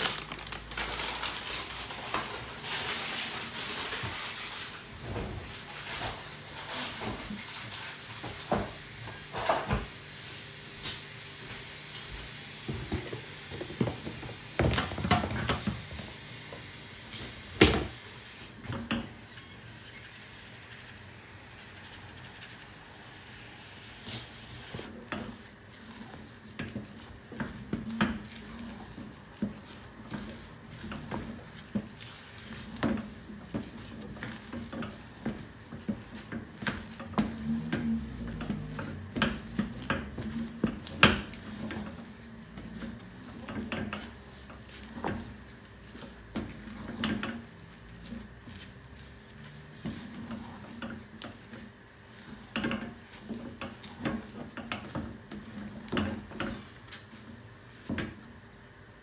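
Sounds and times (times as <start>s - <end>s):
spatula scraping dough in a pot: 21.6s - 58.2s.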